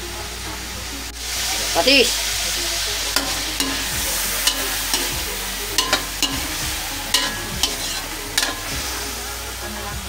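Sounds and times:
meat sizzling in hot oil: 1.0s - 10.0s
spatula clinking against wok: 3.2s - 9.0s.

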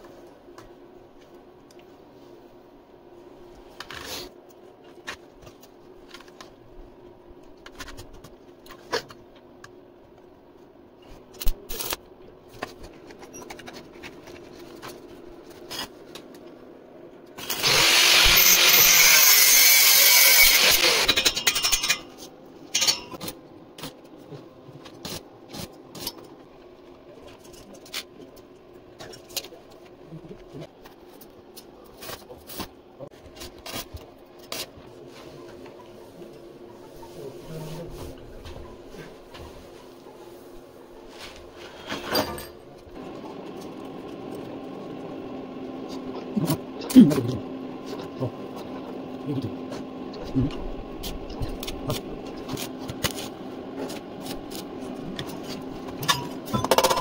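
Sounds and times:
power tool running: 17.4s - 21.6s.

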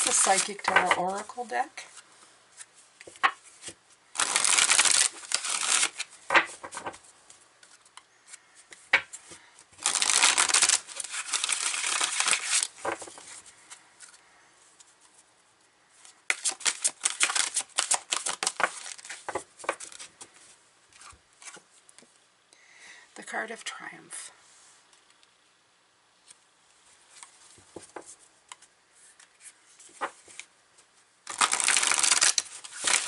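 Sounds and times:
cards being shuffled: 0.0s - 14.2s, 16.0s - 21.7s, 27.1s - 30.5s, 31.3s - 33.0s.

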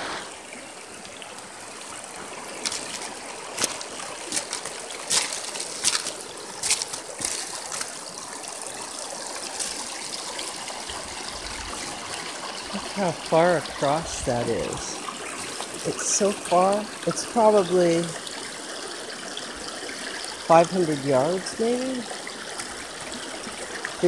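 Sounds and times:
river rushing over rocks: 0.0s - 18.0s.

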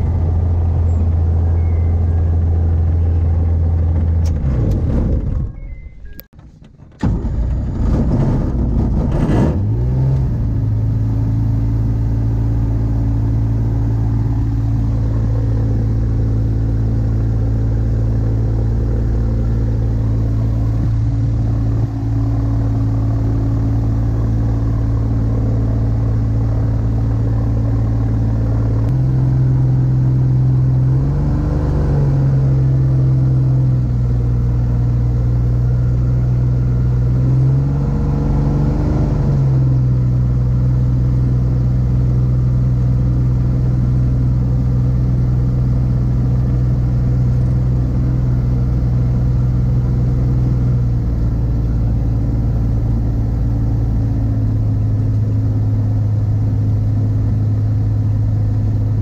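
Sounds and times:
microlight engine running: 10.4s - 37.2s.

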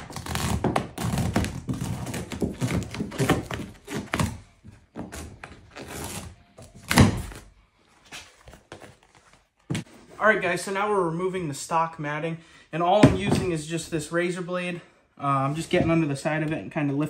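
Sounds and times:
foam matting scraping and tearing: 0.0s - 4.4s, 5.0s - 7.4s.

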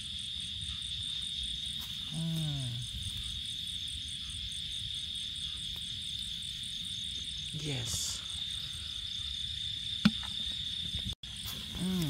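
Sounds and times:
crickets chirping: 0.0s - 12.0s
man humming: 2.1s - 3.0s, 11.6s - 12.0s.

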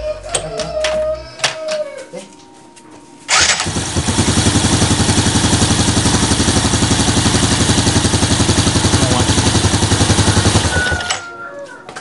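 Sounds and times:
motorcycle engine idling: 3.3s - 11.3s.

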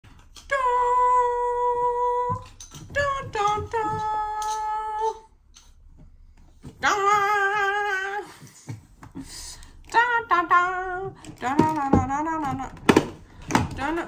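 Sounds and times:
woman singing without words: 0.4s - 5.3s, 6.8s - 8.5s, 9.9s - 12.8s.

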